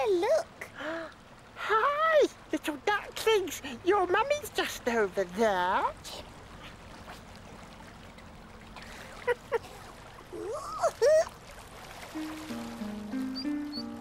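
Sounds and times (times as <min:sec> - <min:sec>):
river water trickling: 0:00.0 - 0:14.0
music: 0:12.2 - 0:14.0.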